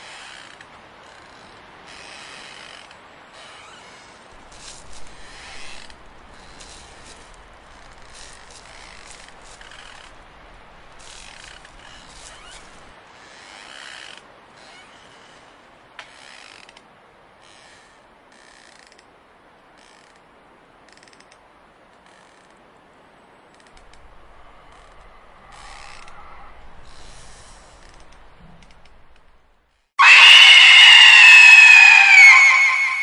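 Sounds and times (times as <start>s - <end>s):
creaking ratcheting ambience: 4.4s - 12.9s, 23.6s - 33.0s
loud long scream alarm: 30.0s - 33.0s.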